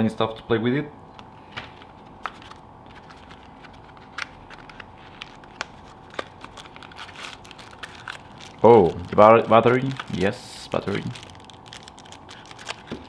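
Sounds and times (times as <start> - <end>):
faint steady hum: 0.0 - 13.0
plastic bags crinkling: 4.4 - 13.0.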